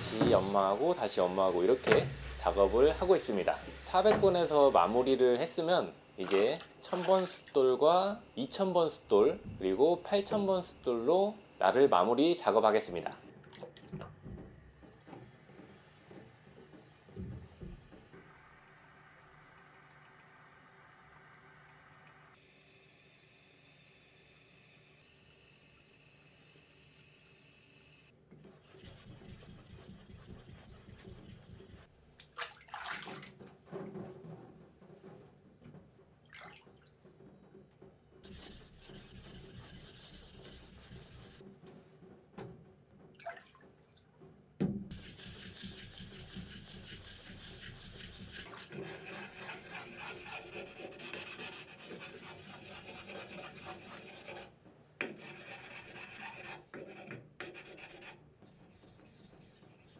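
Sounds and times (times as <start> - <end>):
block scraping on wet whetstone: 0.0 - 5.2, 38.2 - 41.4, 44.9 - 59.9.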